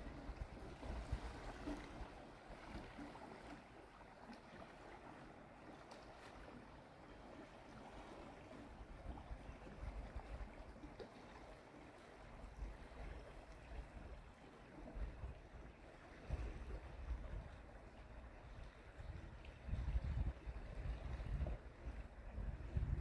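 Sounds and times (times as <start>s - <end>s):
wind rumble on microphone: 0.0s - 3.0s, 14.8s - 23.0s.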